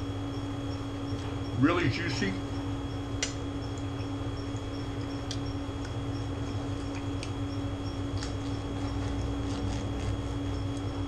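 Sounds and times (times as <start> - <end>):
air-conditioner hum: 0.0 - 11.0.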